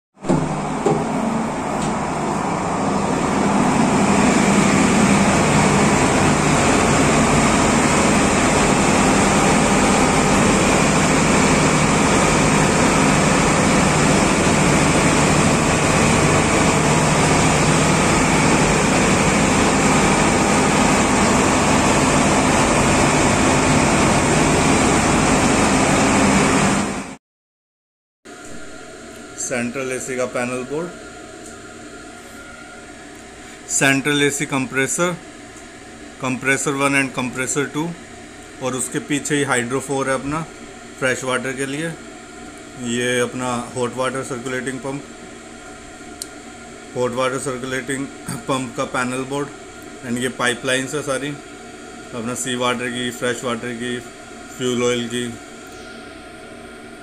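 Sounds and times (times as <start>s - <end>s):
diesel engine hum: 0.5s - 27.0s.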